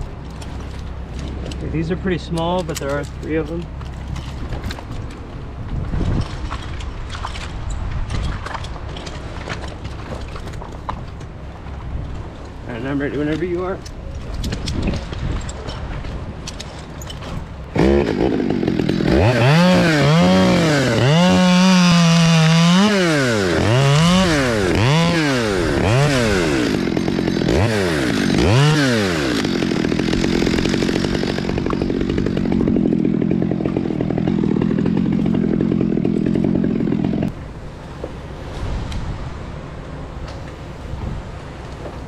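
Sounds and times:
chainsaw revving and cutting: 17.7s - 37.4s.

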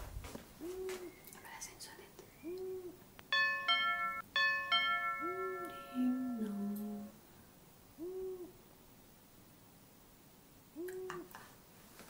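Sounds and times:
owl hooting: 0.6s - 1.2s, 2.4s - 3.0s, 8.0s - 8.6s, 10.8s - 11.3s
two-tone doorbell chime: 3.3s - 7.1s.

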